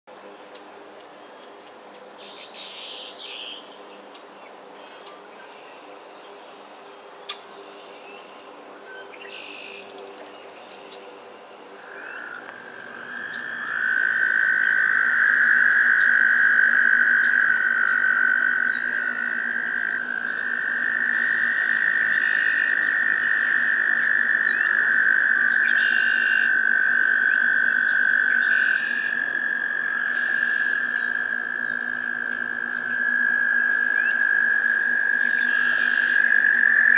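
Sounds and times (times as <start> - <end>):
toads trilling: 11.8 - 36.9.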